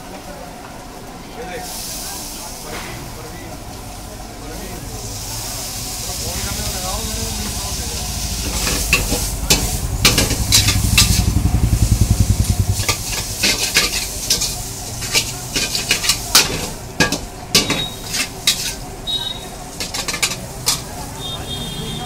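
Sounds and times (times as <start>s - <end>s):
noodles sizzling in a wok: 1.4s - 21.5s
low rumble: 3.6s - 13.4s
metal tongs clanking on wok: 8.5s - 11.2s, 12.8s - 18.9s, 19.7s - 21.1s.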